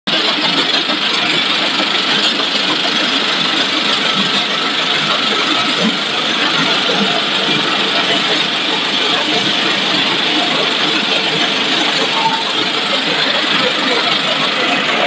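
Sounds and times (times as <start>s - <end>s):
loud steady machine rush: 0.1s - 15.0s.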